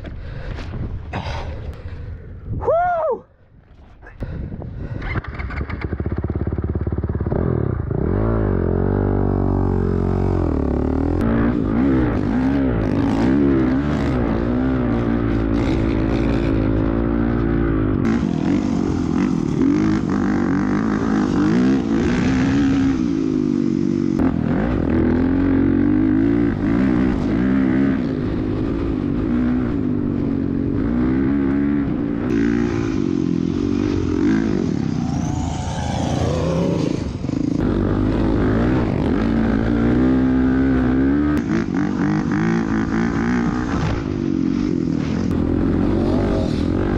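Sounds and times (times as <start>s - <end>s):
dirt bike engine revving: 5.4s - 46.9s.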